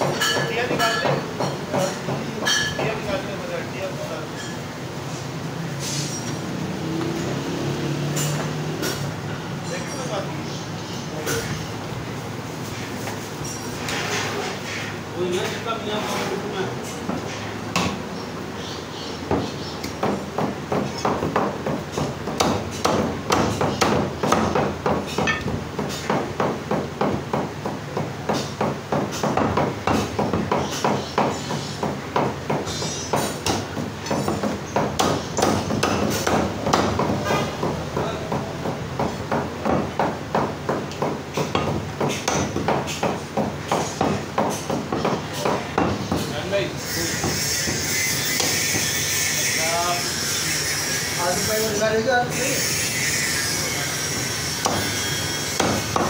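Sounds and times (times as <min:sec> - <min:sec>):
cleaver chopping on wooden block: 0:19.3 - 0:46.3, 0:47.1 - 0:49.2, 0:54.5 - 0:56.0.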